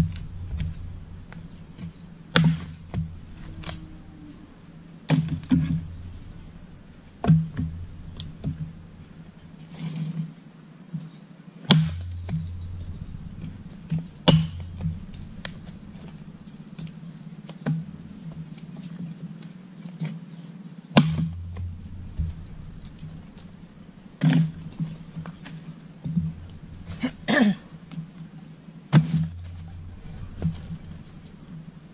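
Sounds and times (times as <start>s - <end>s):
axe splitting firewood: 0.0s - 3.9s, 11.7s - 16.9s.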